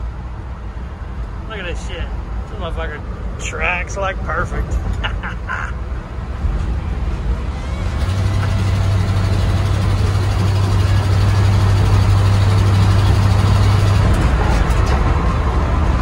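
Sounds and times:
pickup engine and exhaust drone: 0:00.0 - 0:16.0
wind and road noise: 0:00.0 - 0:16.0.

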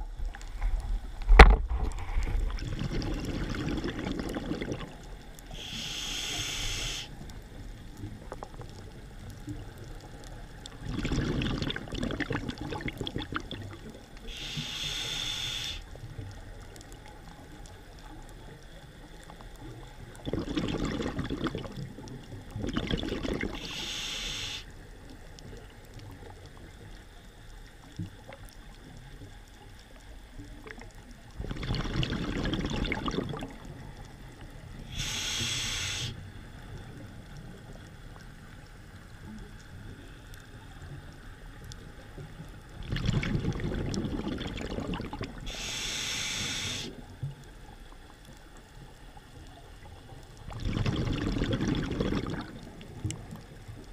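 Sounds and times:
bubbling exhaust underwater: 0:00.0 - 0:53.9
regulator hissing inhales: 0:05.5 - 0:07.2, 0:14.2 - 0:15.9, 0:23.6 - 0:24.8, 0:34.8 - 0:36.2, 0:45.5 - 0:47.0.

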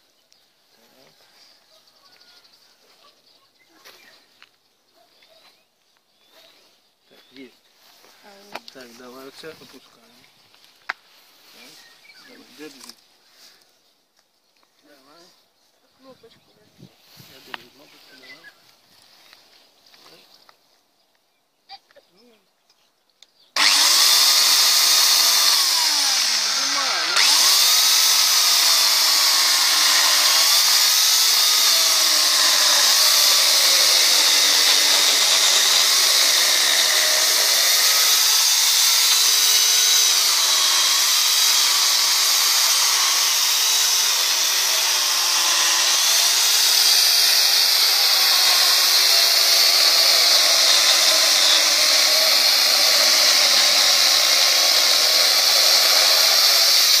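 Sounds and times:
electric chainsaw cutting log: 0:23.6 - 0:57.0.

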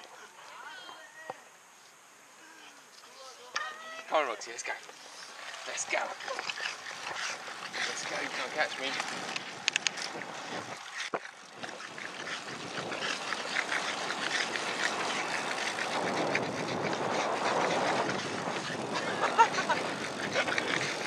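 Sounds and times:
bicycle tyres on tarmac: 0:02.9 - 0:21.0
wind rushing over microphone: 0:06.6 - 0:21.0.

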